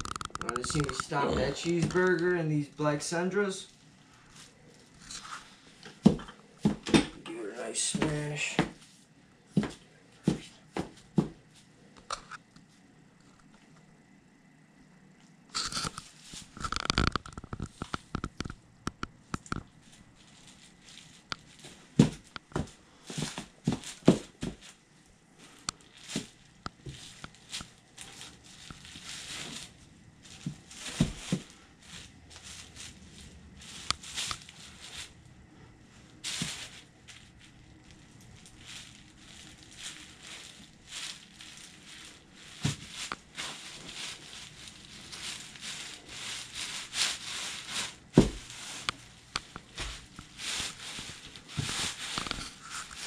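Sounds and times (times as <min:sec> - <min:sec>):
food crunching: 0:00.0 - 0:02.2
plastic sheet crinkling: 0:00.0 - 0:06.8, 0:15.5 - 0:24.8, 0:25.4 - 0:35.3, 0:36.0 - 0:53.0
boot heel thuds: 0:48.2 - 0:48.5.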